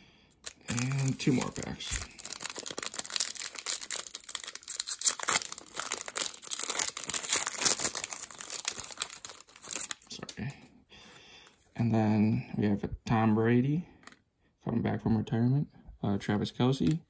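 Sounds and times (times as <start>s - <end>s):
foil wrapper crinkling: 0.4s - 10.3s.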